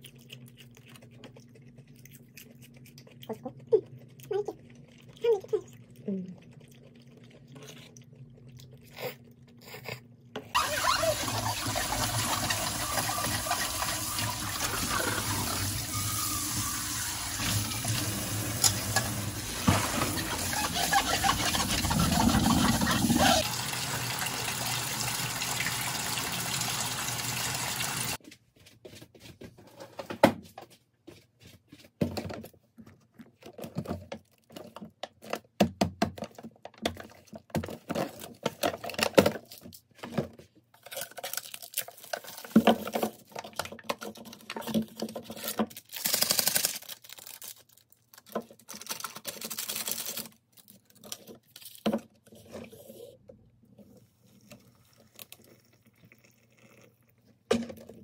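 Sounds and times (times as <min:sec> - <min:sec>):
hands rubbing dish: 0:19.8 - 0:23.4
plastic and cardboard crinkling: 0:31.2 - 0:53.0
tearing plastic crackle: 0:40.8 - 0:51.8.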